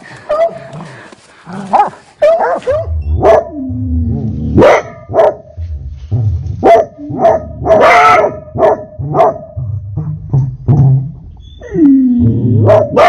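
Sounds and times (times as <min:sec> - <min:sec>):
hound barking in a metal pipe: 0:02.2 - 0:03.5, 0:04.6 - 0:05.4, 0:06.6 - 0:09.5, 0:12.6 - 0:13.0.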